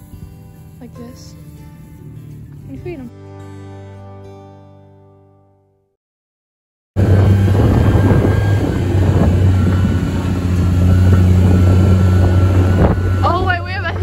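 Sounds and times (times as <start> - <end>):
utility vehicle engine running: 0.0 - 3.1, 7.0 - 14.0
rough road noise: 0.0 - 3.6, 7.0 - 14.0
thin whine: 7.0 - 14.0.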